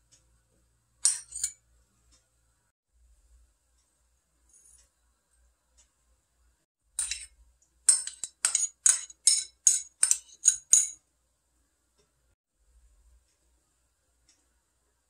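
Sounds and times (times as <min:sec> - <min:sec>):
spoon tapping glass bowl: 0:07.0 - 0:07.3, 0:07.9 - 0:11.0.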